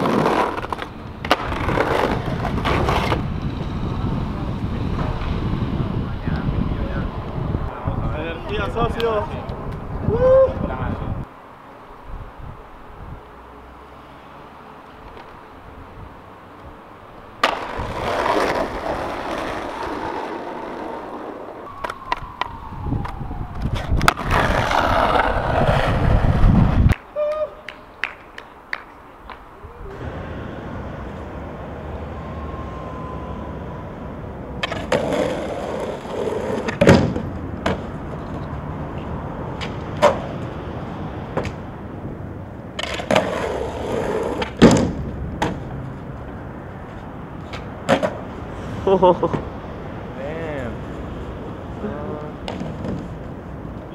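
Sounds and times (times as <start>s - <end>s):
skateboard slapping down: 0.0s - 3.2s, 17.4s - 21.1s, 42.8s - 45.6s
skateboard tail pops and clacks: 0.0s - 3.2s, 17.4s - 19.6s, 21.8s - 25.3s, 34.6s - 35.8s, 36.4s - 37.9s, 41.3s - 41.6s, 42.8s - 45.7s, 47.5s - 48.2s, 52.4s - 53.1s
skateboard wheels rolling on concrete: 0.0s - 53.9s.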